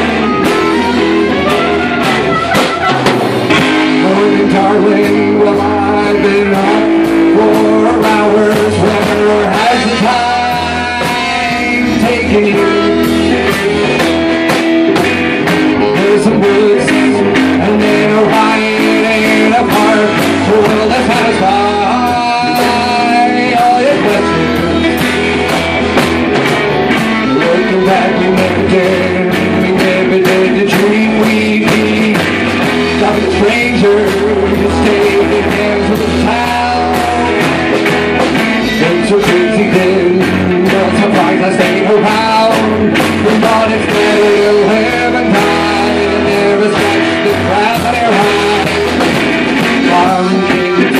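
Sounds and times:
trumpet held notes: 0.0s - 3.6s
drum kit beat: 0.0s - 50.9s
electric guitar: 0.0s - 50.9s.

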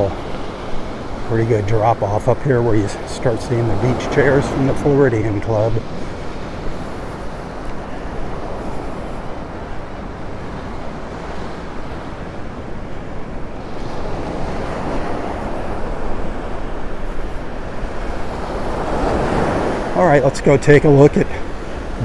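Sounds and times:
surf breaking on a beach: 0.0s - 22.0s.

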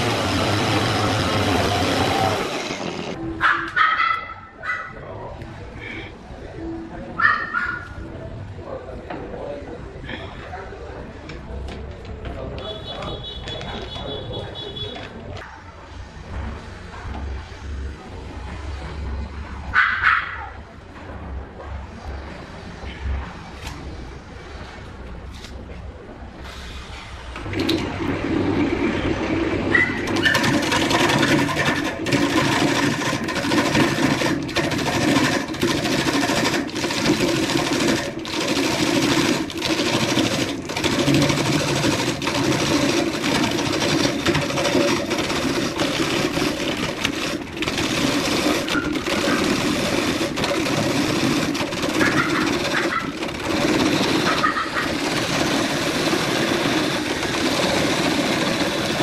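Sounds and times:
wood lathe gouge scraping: 0.0s - 3.2s, 29.1s - 59.0s.

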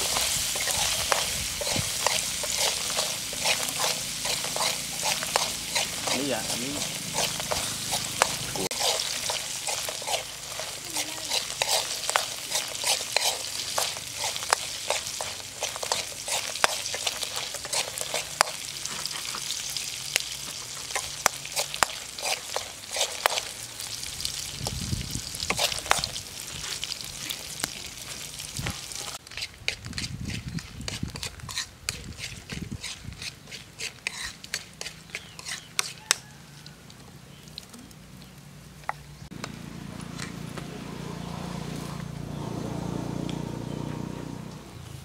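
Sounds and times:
metal spatula stirring in pan: 0.0s - 24.5s, 25.4s - 36.4s
beetles frying with sizzle and pops: 0.0s - 40.8s.

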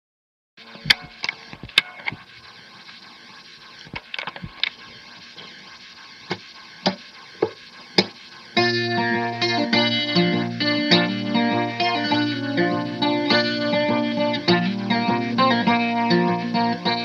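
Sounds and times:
steady hiss: 0.6s - 17.0s
sharp clicks: 0.8s - 8.7s
guitar music: 8.6s - 17.0s.

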